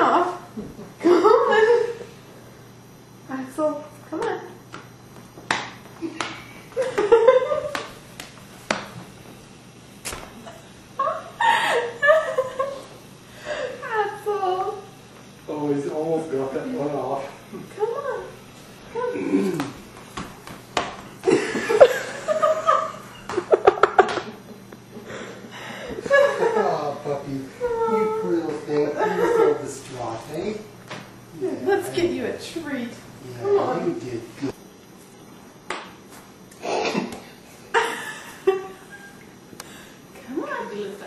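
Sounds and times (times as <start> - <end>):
person laughing: 1.0 - 2.1, 10.4 - 12.9, 21.2 - 25.3
booties tapping on hard floor: 19.6 - 21.1.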